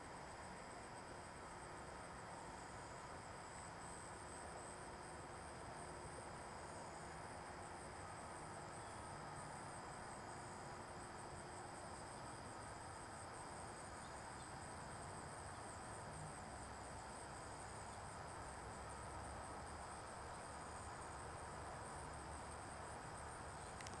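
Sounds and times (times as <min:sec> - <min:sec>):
low background hiss: 0:00.0 - 0:24.0
crickets trilling: 0:00.1 - 0:24.0.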